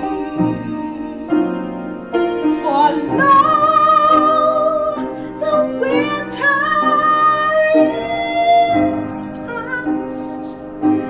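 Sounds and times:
woman singing operatically: 2.5 - 10.6.

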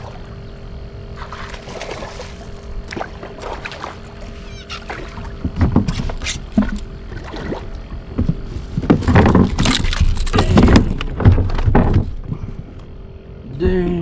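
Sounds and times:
fish splashing in water: 1.1 - 5.4.

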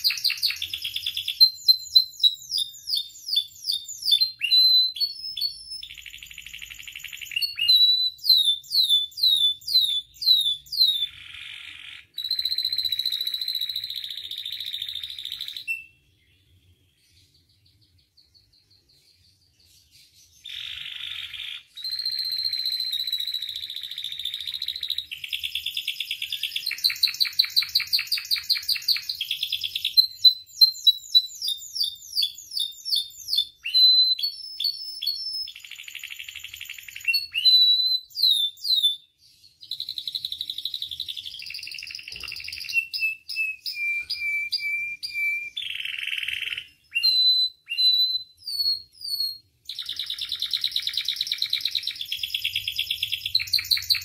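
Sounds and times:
canary singing: 0.0 - 54.0.

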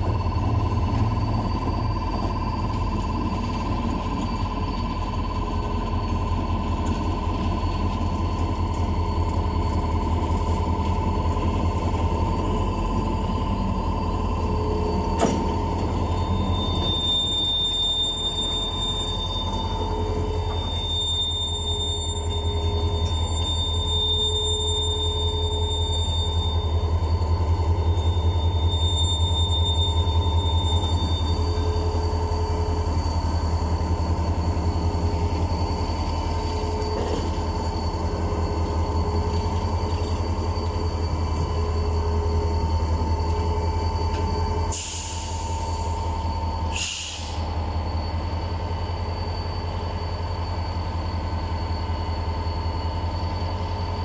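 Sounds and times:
diesel locomotives rumbling past: 0.0 - 17.8, 25.0 - 54.0
short hisses: 46.7 - 47.4.

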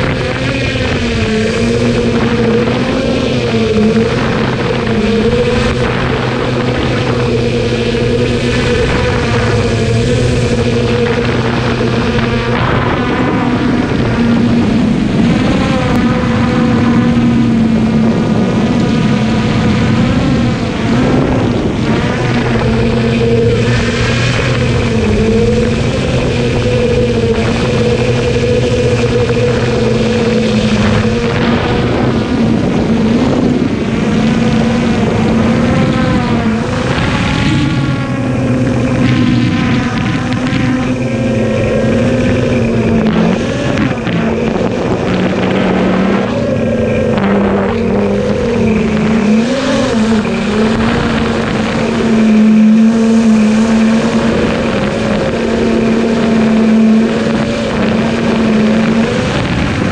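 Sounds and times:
drone motors and propellers humming: 0.0 - 59.9.

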